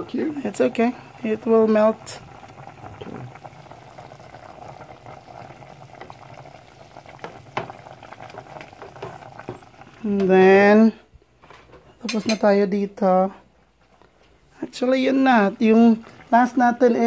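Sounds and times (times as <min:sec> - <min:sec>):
broth bubbling in pot: 0:00.0 - 0:10.8, 0:14.5 - 0:17.0.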